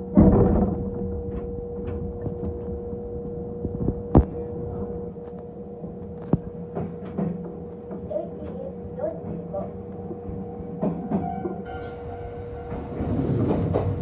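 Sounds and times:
electric train humming: 0.0 - 14.0
wheels clacking on track: 6.7 - 14.0.

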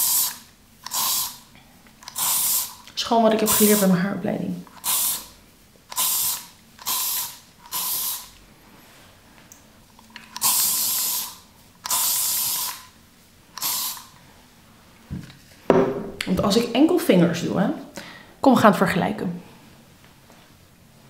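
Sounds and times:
aerosol spray hissing: 0.0 - 1.4, 2.1 - 2.8, 3.4 - 4.0, 4.8 - 5.3, 5.9 - 8.4, 10.4 - 12.9, 13.6 - 14.2.

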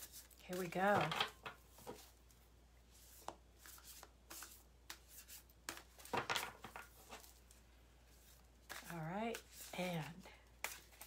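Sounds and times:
cards being shuffled: 8.1 - 11.0.

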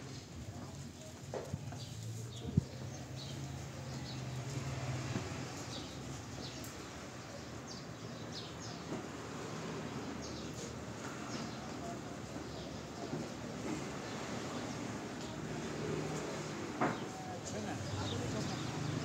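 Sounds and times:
town street background noise: 0.0 - 19.0
small birds chirping: 0.9 - 19.0.

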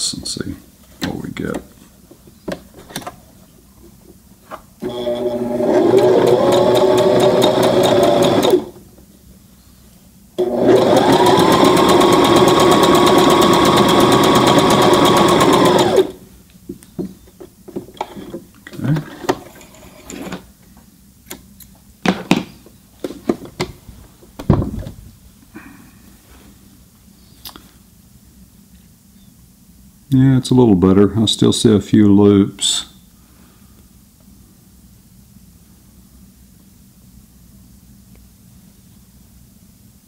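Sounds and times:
sewing machine stitching: 4.8 - 8.8, 10.4 - 16.2.

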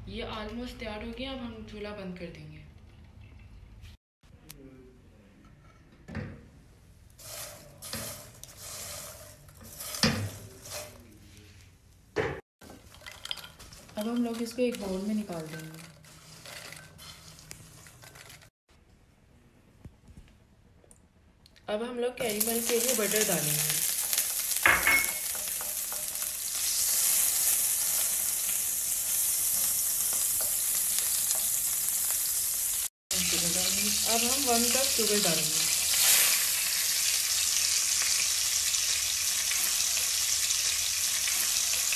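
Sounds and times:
spatula stirring popcorn in pan: 7.2 - 11.3, 12.6 - 18.5, 22.5 - 32.8, 38.9 - 41.9
butter sizzling in a pan: 22.2 - 41.9.

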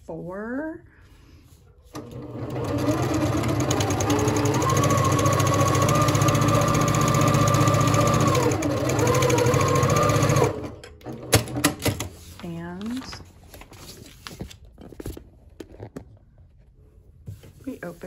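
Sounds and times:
sewing machine stitching: 1.9 - 12.1.

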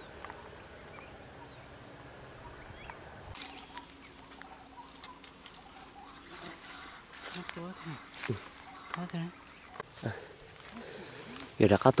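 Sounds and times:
dry grass and twigs crackling: 3.3 - 12.0.

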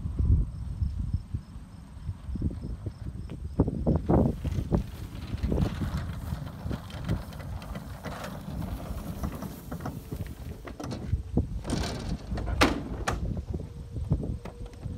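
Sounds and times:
glider wheel rumbling on ground: 2.4 - 14.9
airframe knocks and rattles: 4.1 - 13.6.

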